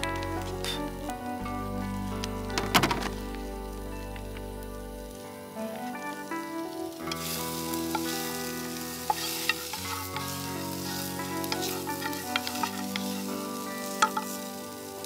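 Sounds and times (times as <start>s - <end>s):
soft background music: 0.0s - 15.0s
food sizzling in frying pan: 4.6s - 15.0s
spatula scraping pan: 7.2s - 13.3s.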